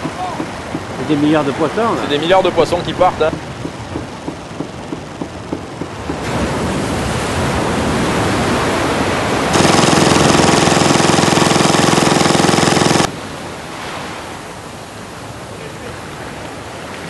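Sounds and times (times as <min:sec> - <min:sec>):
buzzing boat motor drone: 0:03.3 - 0:06.7, 0:09.5 - 0:13.1.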